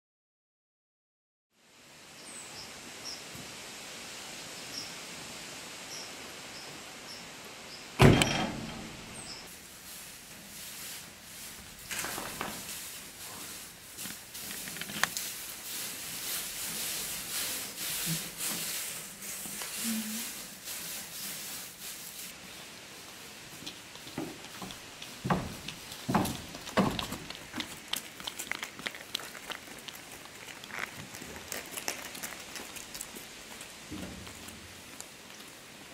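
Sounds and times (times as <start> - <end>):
loud ringing bang: 8.0 - 9.1
straw rustling and crackling: 9.0 - 35.9.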